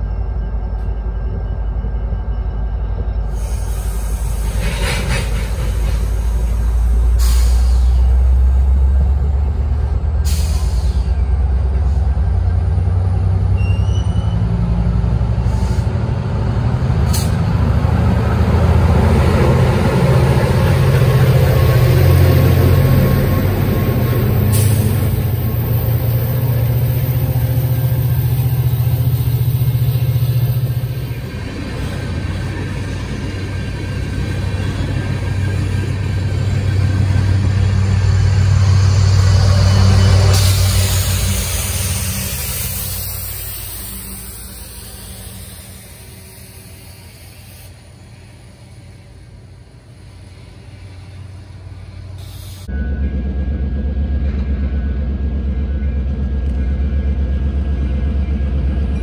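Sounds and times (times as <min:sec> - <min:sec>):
diesel locomotive droning: 0:00.0 - 0:59.0
air hisses: 0:03.3 - 0:08.2, 0:40.3 - 0:49.1, 0:52.2 - 0:52.7.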